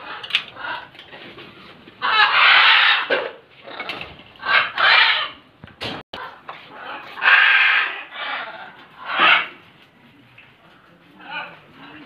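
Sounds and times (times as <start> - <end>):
macaws squawking: 2.0 - 3.8, 4.4 - 5.4, 6.7 - 9.6.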